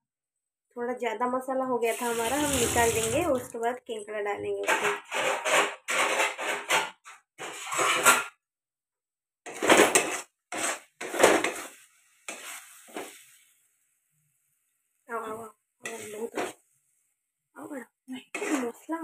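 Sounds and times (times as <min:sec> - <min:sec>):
metal spatula scraping metal pan: 0:01.9 - 0:03.5, 0:04.6 - 0:08.3, 0:09.5 - 0:13.6, 0:15.3 - 0:16.6, 0:18.2 - 0:18.8.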